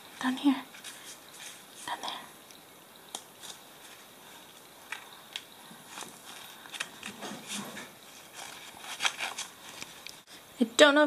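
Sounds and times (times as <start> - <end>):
corn husks crackling and tearing: 4.8 - 10.2.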